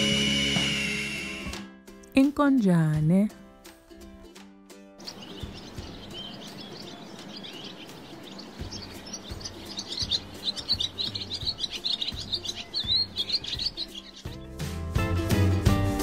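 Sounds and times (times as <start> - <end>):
swallow twittering: 5.0 - 14.8.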